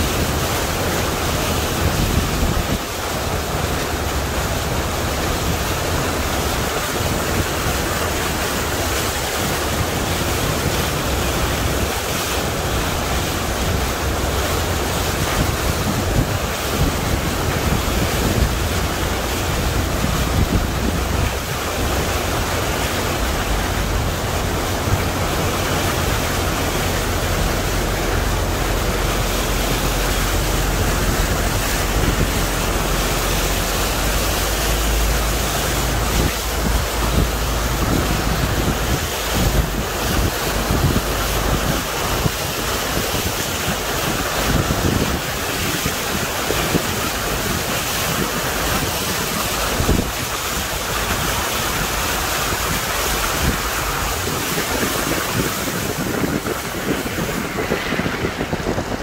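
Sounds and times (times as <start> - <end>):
floodwater splashing against vehicle: 0.0 - 59.0
wind buffeting microphone: 0.0 - 59.0
low rumble: 52.1 - 59.0.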